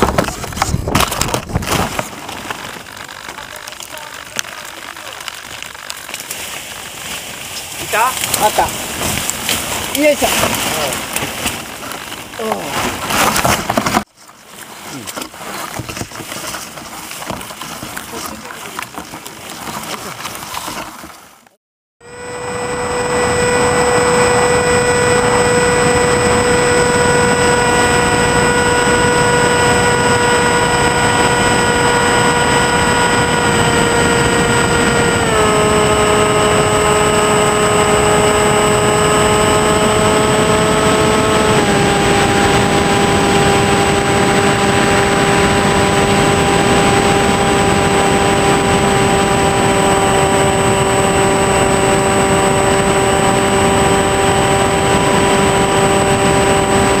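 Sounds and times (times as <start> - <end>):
wind noise: 0.0 - 3.2, 22.2 - 57.0
electric motor and propeller whine: 0.0 - 14.1, 22.0 - 57.0.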